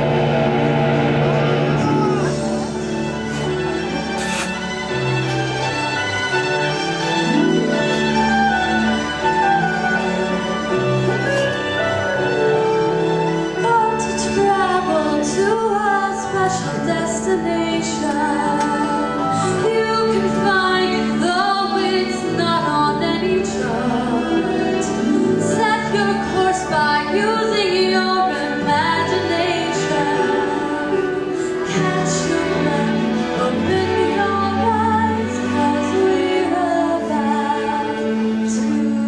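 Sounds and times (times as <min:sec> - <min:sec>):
sustained instrumental accompaniment: 0:00.0 - 0:39.0
woman singing into a microphone: 0:13.6 - 0:39.0.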